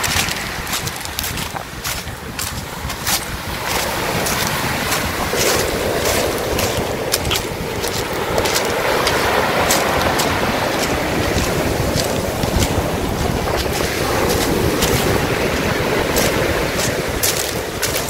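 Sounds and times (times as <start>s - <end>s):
stones rattling in surf: 0.0s - 18.0s
waves breaking on pebble beach: 0.0s - 18.0s
wind rumble on microphone: 0.0s - 18.0s.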